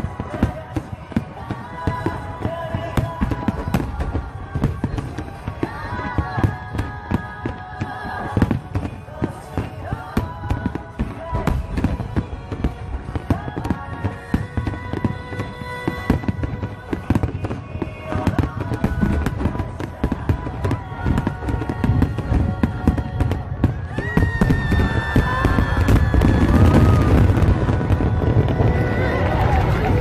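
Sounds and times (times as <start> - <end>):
fireworks bangs and crackles: 0.0 - 30.0.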